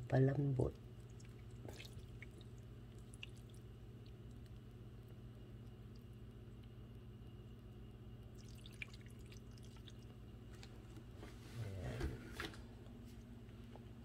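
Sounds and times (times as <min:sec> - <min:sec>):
liquid dripping: 0:00.6 - 0:11.0.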